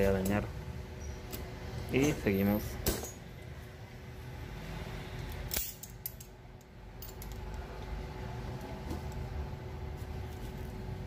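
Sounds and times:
metal tools clicking: 5.2s - 7.6s.

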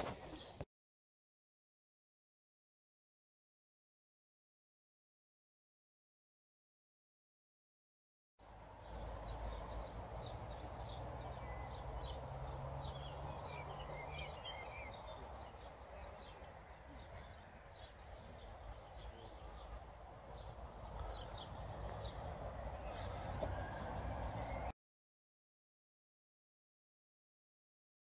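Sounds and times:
small birds chirping: 8.5s - 24.7s.

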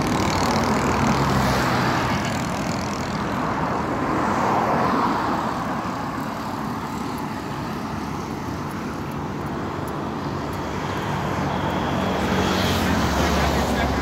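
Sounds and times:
steady traffic rumble: 0.0s - 14.0s
vehicle passing by: 10.0s - 14.0s.

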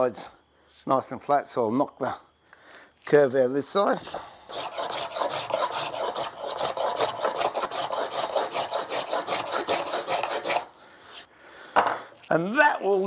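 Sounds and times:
hand plane shaving wood: 4.5s - 10.7s.

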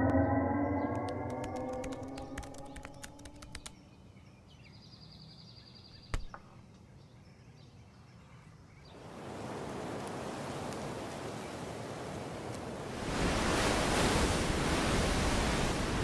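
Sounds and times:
gong-like tone: 0.0s - 1.8s
laptop keys clicking: 1.0s - 3.8s.

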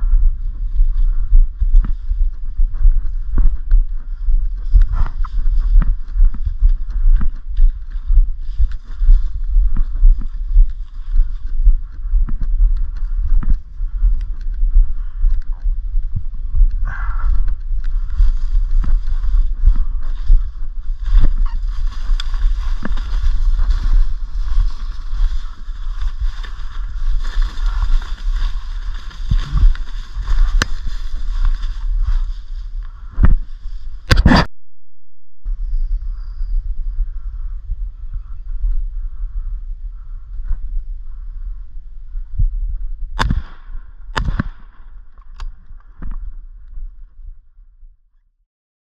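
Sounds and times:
wind buffeting microphone: 0.0s - 34.5s, 35.4s - 47.5s
footsteps through dry leaves: 17.8s - 34.0s
twigs snapping: 21.1s - 32.3s.

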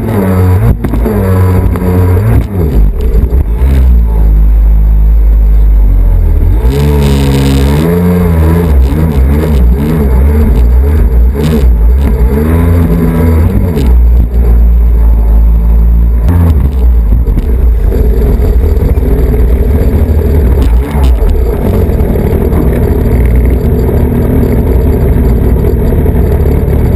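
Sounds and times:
jet ski engine running: 10.2s - 26.9s
wind rumble on microphone: 16.4s - 26.9s.

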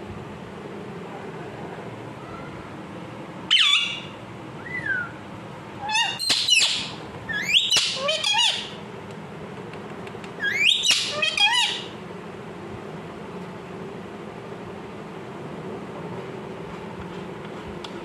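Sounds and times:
parakeet calling and squawking: 3.5s - 5.0s, 5.8s - 8.8s, 10.4s - 12.0s.

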